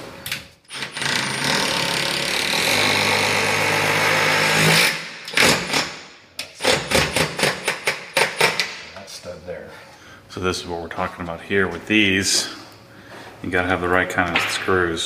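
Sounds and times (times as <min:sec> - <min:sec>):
impact driver hammering: 0:06.5 - 0:08.8.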